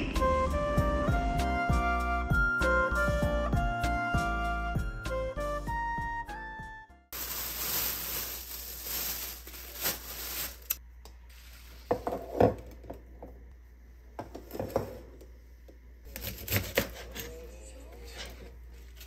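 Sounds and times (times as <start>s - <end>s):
plastic bag crinkling: 7.1s - 10.8s.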